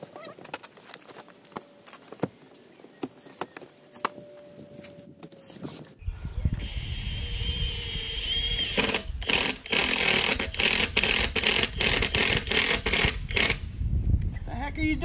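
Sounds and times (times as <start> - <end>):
power tool motor whine: 6.6 - 13.6.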